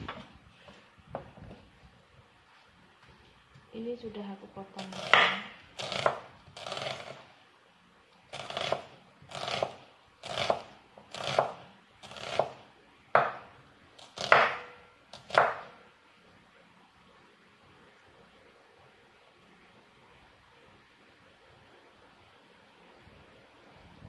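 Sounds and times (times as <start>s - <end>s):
knife slicing onion on board: 4.8s - 7.2s, 8.3s - 15.8s.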